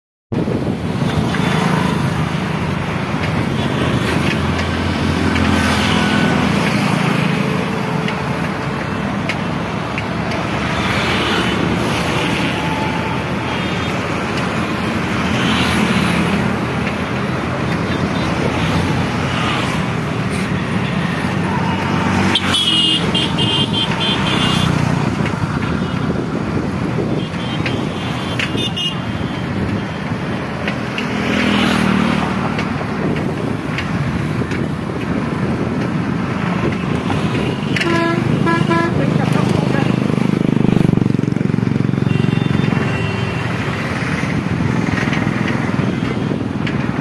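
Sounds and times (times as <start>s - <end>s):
road traffic: 0.3s - 47.0s
vehicle horn tooting: 37.8s - 39.2s.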